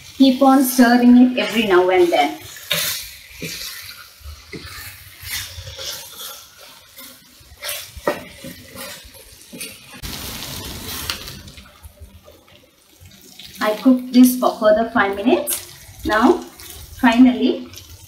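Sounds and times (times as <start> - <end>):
liver sizzling in a frying pan: 0.0 - 18.0
spatula scraping a pan: 1.4 - 11.6.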